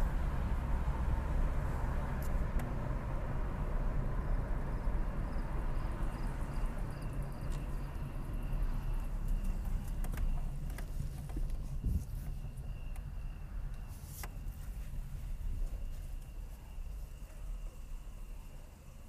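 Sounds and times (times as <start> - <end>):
car engine and road noise: 0.0 - 19.0.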